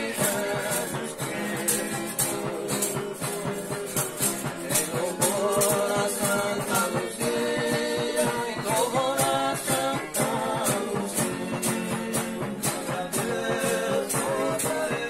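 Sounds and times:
men singing together: 0.0 - 15.0
strummed guitars: 0.0 - 15.0
tambourine jingles: 0.0 - 15.0.

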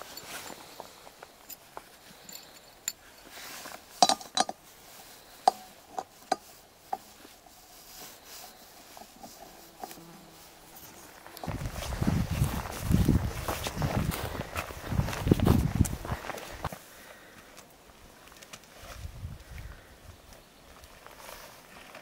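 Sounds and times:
small metal clicks and clinks: 1.4 - 3.3, 4.0 - 4.6.

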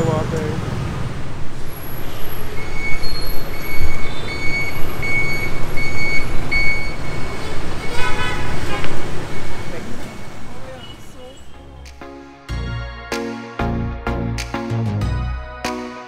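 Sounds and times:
street traffic rumble: 0.0 - 12.8
electronic beeps: 2.6 - 8.0
car horn: 3.8 - 4.8, 7.4 - 11.8.

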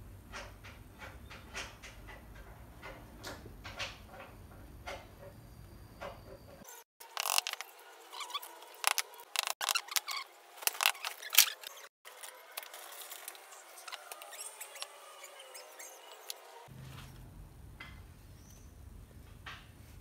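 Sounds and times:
wooden slats clicking and knocking: 0.2 - 5.4, 8.9 - 11.8.

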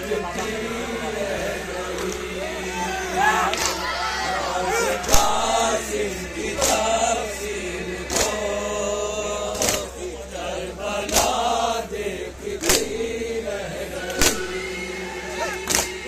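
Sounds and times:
men chanting together: 0.0 - 16.0
hands slapping chests: 3.5 - 3.8, 6.6 - 7.0, 8.1 - 8.4, 9.6 - 9.9, 11.1 - 11.4, 12.6 - 13.0, 14.1 - 14.4, 15.6 - 16.0.

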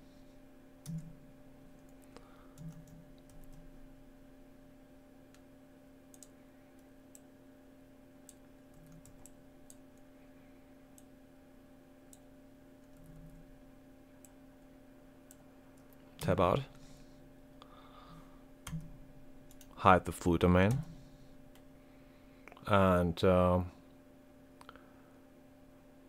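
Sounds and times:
steady low hum: 0.0 - 26.0
keyboard and mouse clicks: 0.8 - 1.2, 1.8 - 3.7, 6.1 - 7.3, 8.2 - 10.1, 18.6 - 18.9, 20.6 - 21.6.

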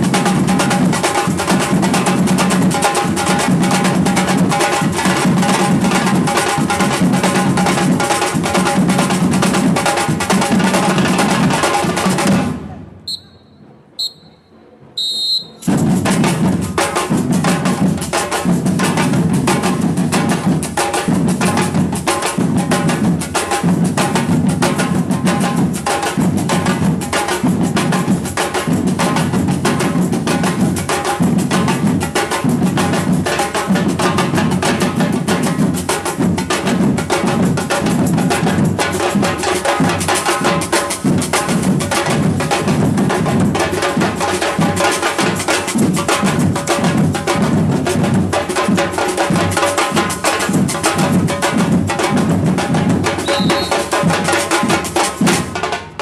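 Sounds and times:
samba percussion band: 0.0 - 56.0
high whistle blast: 13.0 - 15.7, 53.2 - 53.9.

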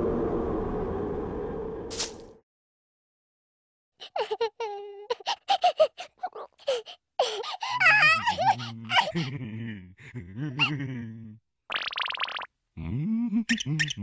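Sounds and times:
low buzzing drone: 0.0 - 1.9
giggling cooing cartoon voice: 7.7 - 11.4, 12.8 - 14.0
wavering voice: 7.8 - 11.4, 12.8 - 14.0.

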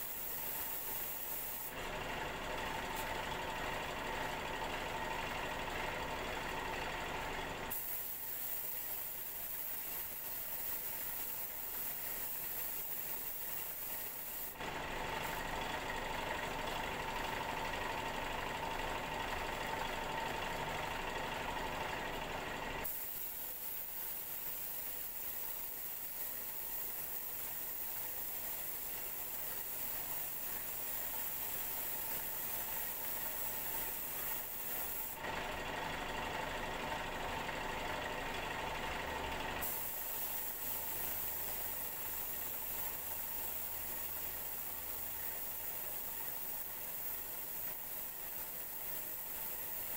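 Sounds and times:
paint spray gun hissing: 0.0 - 1.9, 7.6 - 16.2, 22.8 - 35.3, 39.6 - 49.9
steady motor hum: 0.0 - 49.9.

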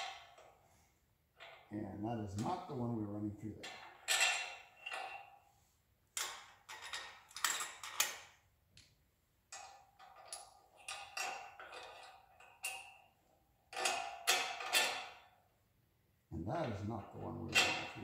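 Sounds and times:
metal tools clinking and rattling: 3.6 - 5.4, 6.2 - 8.3, 9.5 - 15.3, 16.6 - 18.0.

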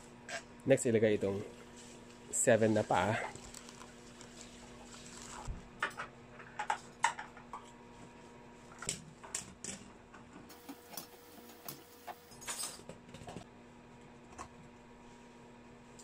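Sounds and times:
plastic bag crinkling: 3.3 - 5.5.

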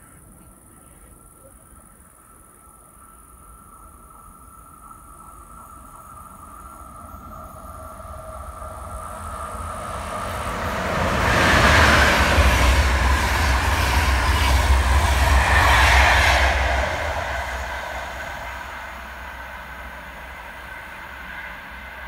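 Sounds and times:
train wheels rumbling on rails: 4.8 - 22.0.

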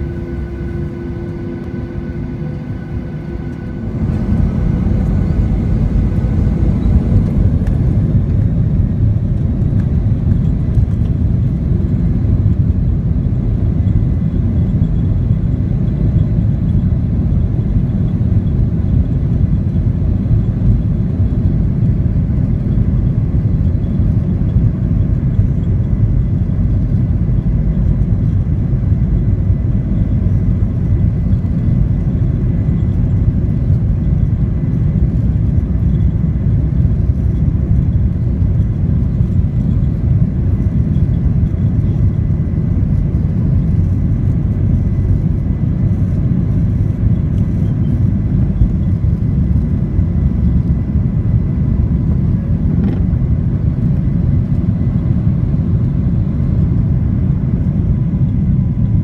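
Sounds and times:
faint high engine whine: 0.0 - 59.0
low cabin rumble: 0.0 - 59.0.

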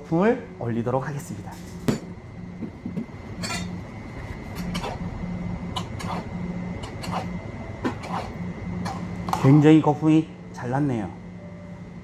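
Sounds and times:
steady low hum: 0.0 - 12.0
glassware clinking: 3.4 - 3.7.

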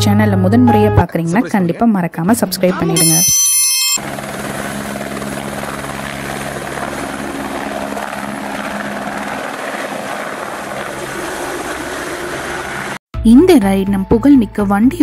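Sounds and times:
helicopter rotor and engine drone: 3.0 - 13.0.

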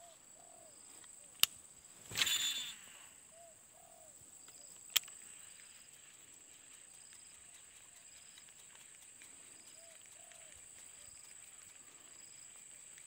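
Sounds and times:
high-pitched insect drone: 2.1 - 3.4
short arched calls: 2.1 - 4.2
fishing reel click: 2.2 - 3.0.

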